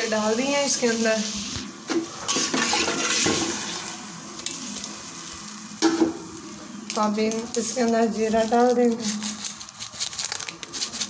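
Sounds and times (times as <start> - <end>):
water sloshing in a pot: 1.8 - 6.2.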